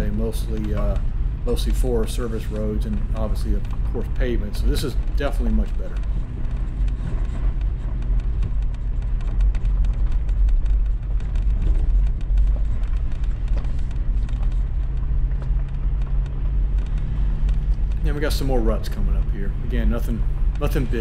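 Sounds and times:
clicks and rattles: 0:00.0 - 0:21.0
engine and road rumble: 0:00.0 - 0:21.0.

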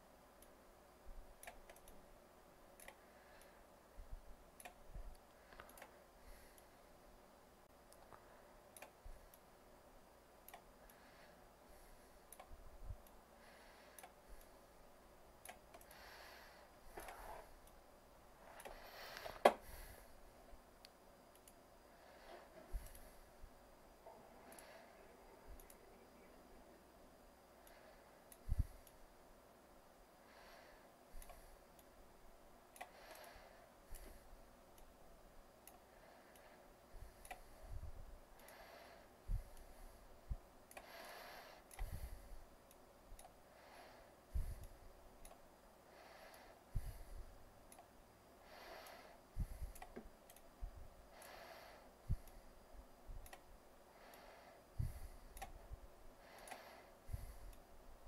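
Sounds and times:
computer mouse clicking: 0:01.3 - 0:02.0, 0:02.8 - 0:03.6, 0:04.5 - 0:06.7, 0:15.4 - 0:17.8, 0:18.4 - 0:20.1, 0:20.8 - 0:21.6, 0:24.4 - 0:26.5, 0:35.6 - 0:37.5, 0:48.7 - 0:50.5, 0:53.2 - 0:53.5, 0:54.1 - 0:55.6, 0:56.3 - 0:57.7.

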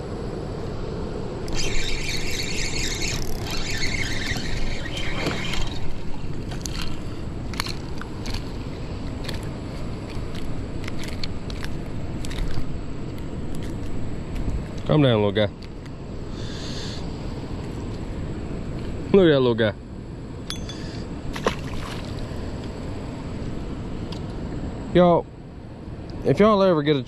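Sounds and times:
spinning reel cranking: 0:01.5 - 0:06.9
fish splashing: 0:01.5 - 0:09.4, 0:21.3 - 0:22.3
harsh hiss: 0:16.3 - 0:17.1.

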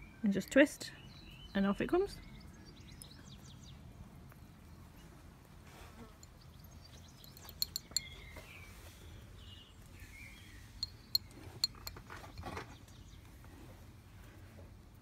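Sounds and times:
plastic hooks clinking on ceramic dish: 0:07.3 - 0:08.0.

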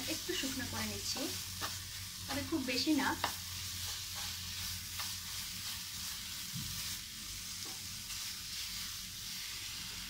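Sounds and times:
food sizzling in a frying pan: 0:00.0 - 0:10.0
wooden spatula scraping pan: 0:00.2 - 0:07.0
faint spatula taps: 0:03.2 - 0:03.4.

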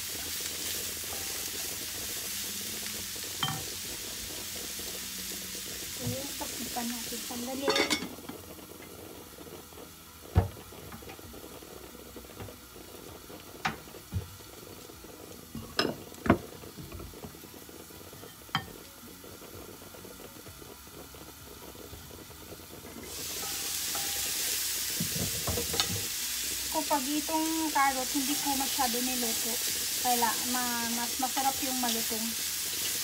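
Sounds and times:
spatula stirring vegetables: 0:00.0 - 0:09.8, 0:21.2 - 0:33.0
vegetables sizzling in frying pan: 0:00.0 - 0:33.0
lid clinking on pan: 0:07.6 - 0:08.2, 0:25.5 - 0:26.1.

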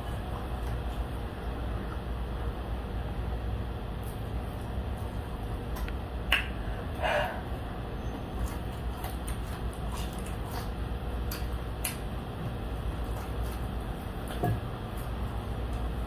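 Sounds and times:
mouth clicks and smacks chewing: 0:00.0 - 0:02.1, 0:04.0 - 0:07.0, 0:08.2 - 0:16.0
crunch: 0:08.2 - 0:16.0.

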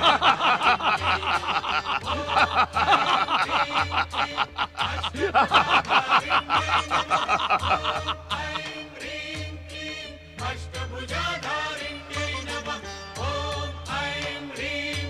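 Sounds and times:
men laughing loudly: 0:00.0 - 0:09.0
background music with low pulse: 0:00.0 - 0:15.0.

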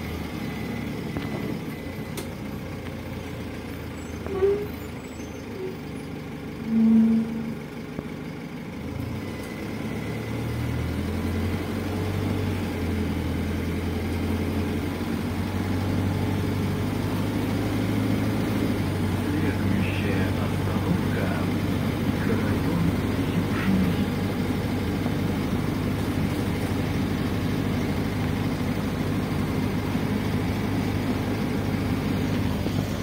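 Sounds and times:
bus engine hum: 0:00.0 - 0:33.0
road noise: 0:00.0 - 0:33.0
short low tone: 0:06.6 - 0:07.9.

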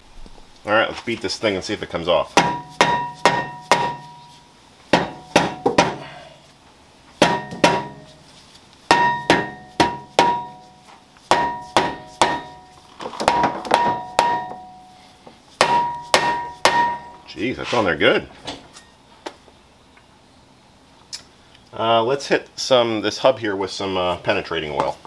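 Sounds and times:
mallet striking metal brake rotor: 0:02.4 - 0:06.1, 0:07.2 - 0:08.2, 0:08.9 - 0:12.7, 0:13.3 - 0:14.9, 0:15.6 - 0:17.2.

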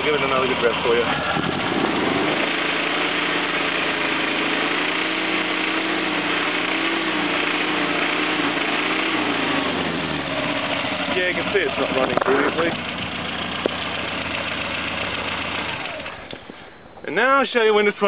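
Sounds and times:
rough car engine revving: 0:00.0 - 0:16.5.

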